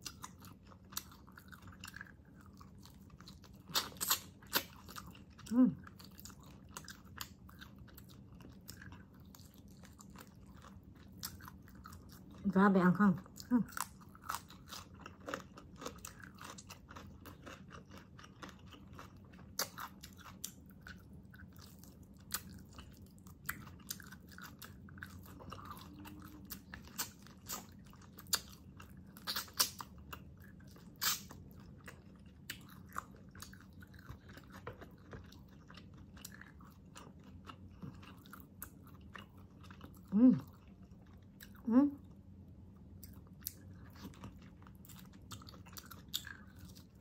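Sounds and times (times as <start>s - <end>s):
person chewing and biting: 0.0s - 12.4s, 13.7s - 41.6s, 42.8s - 47.0s.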